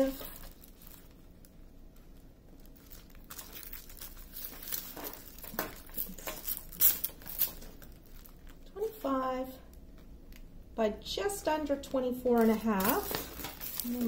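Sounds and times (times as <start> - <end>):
plastic film crinkling: 0.0 - 8.9, 11.8 - 14.0.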